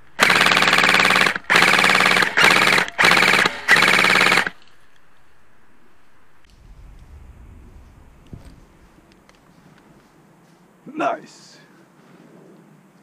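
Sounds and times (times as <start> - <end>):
airsoft gun firing full auto: 0.1 - 4.7.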